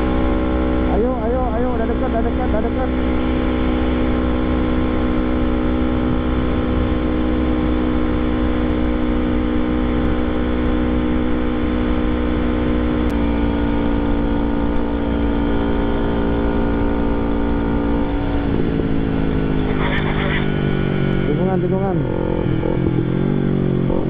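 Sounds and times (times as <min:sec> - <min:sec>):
motorcycle engine cruising: 0:00.0 - 0:24.0
wind rush on microphone: 0:02.9 - 0:11.2.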